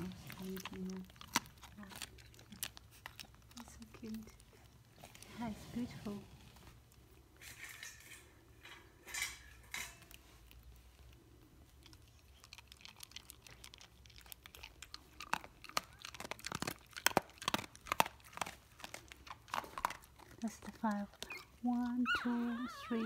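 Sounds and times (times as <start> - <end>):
dog chewing and smacking: 0.0 - 5.5, 10.0 - 23.0
soft rustles: 0.0 - 11.8.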